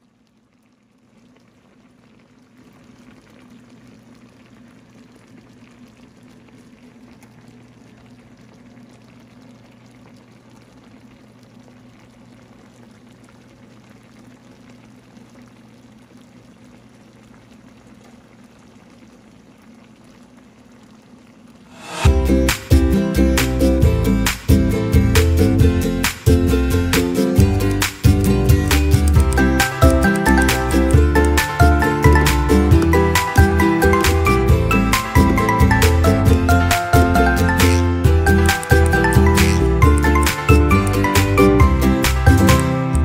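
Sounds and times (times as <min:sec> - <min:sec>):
sauce bubbling in a pan: 0:00.0 - 0:22.2.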